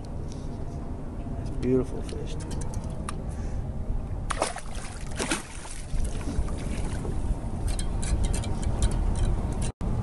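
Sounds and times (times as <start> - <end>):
wind rumbling on microphone: 0.1 - 10.0
water lapping against boat: 4.3 - 7.4.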